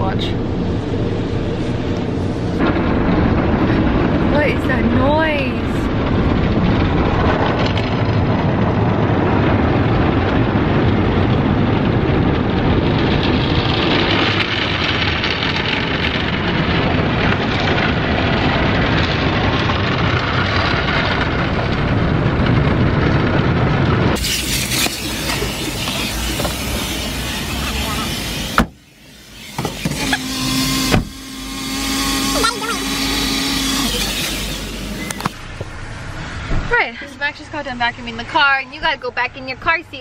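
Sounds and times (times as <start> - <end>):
spinning wash brushes: 24.2 - 35.5
car wash water spray: 24.2 - 37.6.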